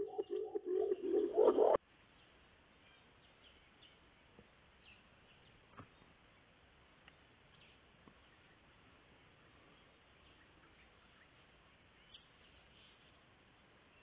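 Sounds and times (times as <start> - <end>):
pigeon cooing: 0.0 - 1.8.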